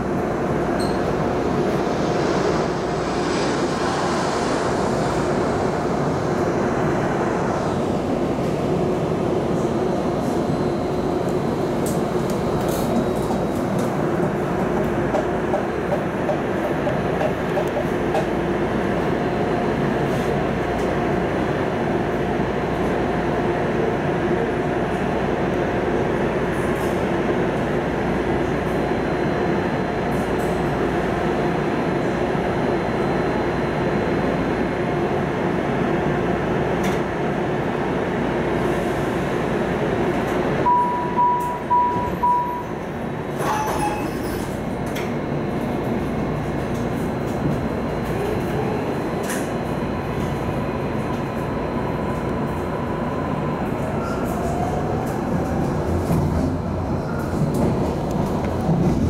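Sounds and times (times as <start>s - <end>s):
rail car humming: 0.0s - 59.0s
rising motor whine: 1.0s - 7.8s
door chime beeps: 40.7s - 42.8s.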